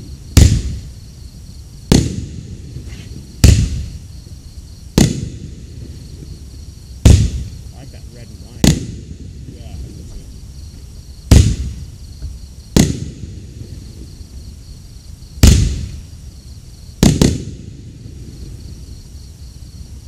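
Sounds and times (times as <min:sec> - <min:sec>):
firework bangs with echoes: 0:00.0 - 0:01.0, 0:01.8 - 0:04.0, 0:04.9 - 0:10.3, 0:11.2 - 0:14.2, 0:15.4 - 0:16.1, 0:17.0 - 0:18.4.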